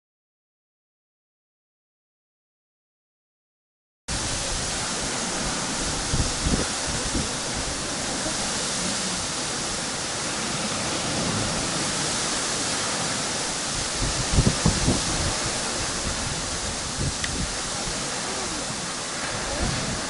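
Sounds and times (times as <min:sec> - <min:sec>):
strong wind rushing: 0:04.1 - 0:20.0
wind gusts buffeting microphone: 0:04.1 - 0:20.0.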